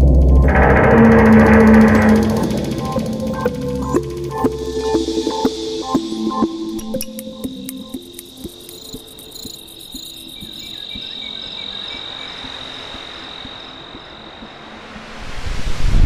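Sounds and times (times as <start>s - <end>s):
crickets chirping: 0.4s - 15.4s
wind-like whoosh: 15.0s - 16.0s.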